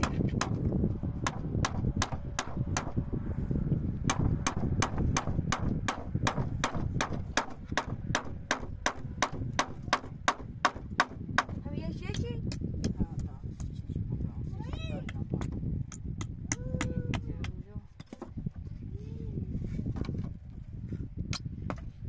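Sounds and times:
steady low rumble: 0.0s - 22.0s
sharp knocks: 4.1s - 11.6s.

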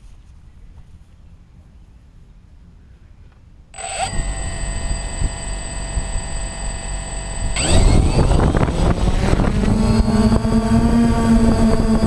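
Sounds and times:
drone propellers buzzing: 3.8s - 12.0s.

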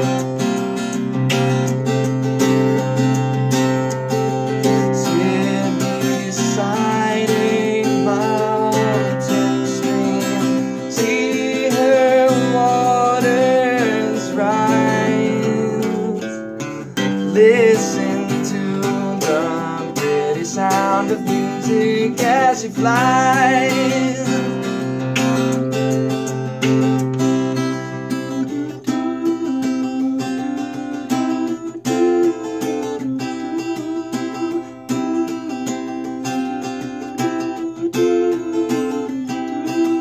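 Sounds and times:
acoustic guitar accompaniment: 0.0s - 40.0s
man singing: 4.6s - 25.0s, 28.1s - 36.0s, 37.2s - 40.0s.

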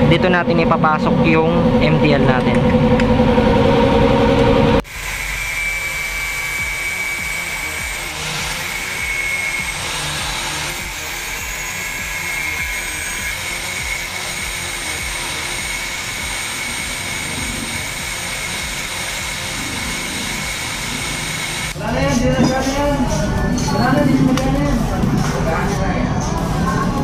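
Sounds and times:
angle grinder cutting metal: 4.7s - 22.2s.

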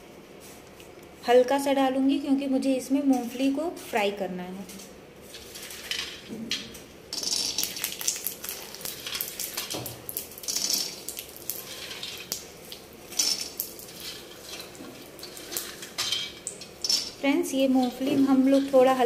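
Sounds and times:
peanuts rattling in metal pan: 7.1s - 9.8s, 10.4s - 12.3s, 13.1s - 19.0s
light oil sizzle: 7.4s - 19.0s.

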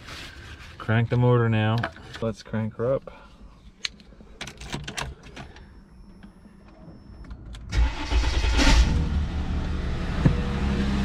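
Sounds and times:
car engine starting and idling: 6.2s - 11.0s.

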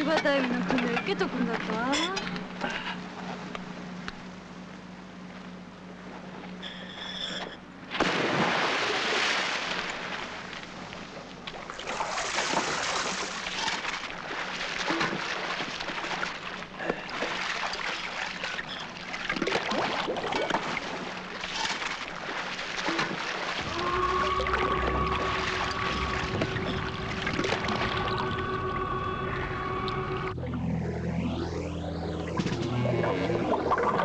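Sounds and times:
water sloshing at surface: 7.3s - 30.6s
diver splashing into water: 7.9s - 10.5s, 11.8s - 18.4s.

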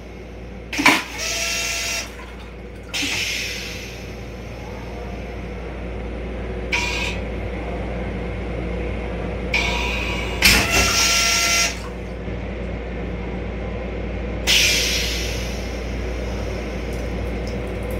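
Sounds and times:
low steady hum: 0.0s - 10.5s, 15.3s - 17.9s
toilet flushing: 0.7s - 4.4s, 9.6s - 12.2s, 14.5s - 17.9s.

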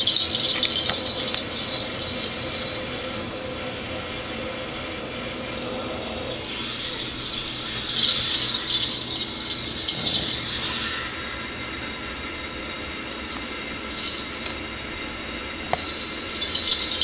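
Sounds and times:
bell ball rattling: 0.0s - 3.0s, 6.8s - 10.9s, 15.8s - 17.0s.

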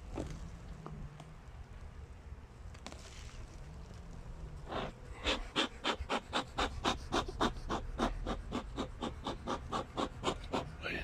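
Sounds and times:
bellows smoker puffing: 4.6s - 11.0s.

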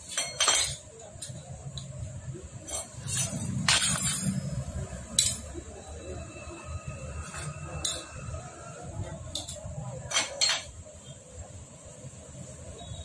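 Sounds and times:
metal parts clinking: 0.0s - 1.4s, 2.6s - 4.6s.

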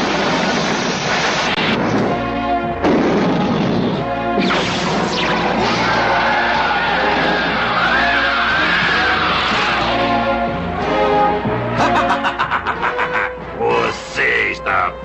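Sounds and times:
cartoon fire blasts: 0.0s - 9.9s
background music: 1.6s - 15.0s.

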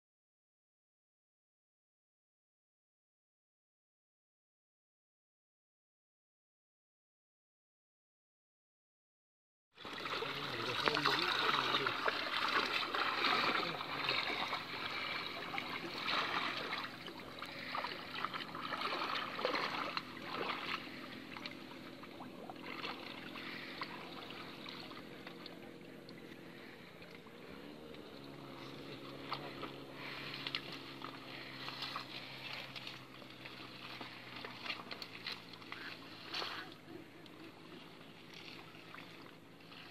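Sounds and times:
low motor hum: 9.8s - 39.9s
water splashing from wading: 9.8s - 39.9s.

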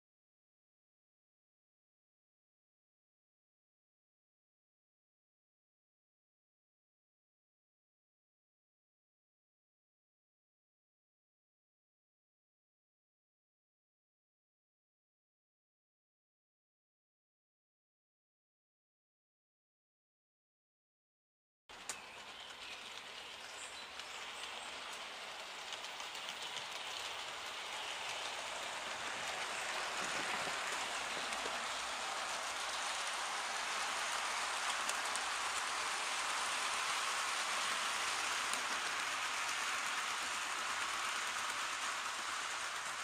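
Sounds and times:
model train wheels rattling on rail: 21.7s - 43.0s.

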